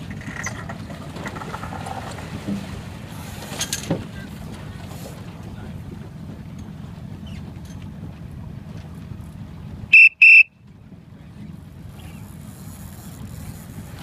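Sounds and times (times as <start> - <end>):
whistle blasts: 9.9 - 10.6.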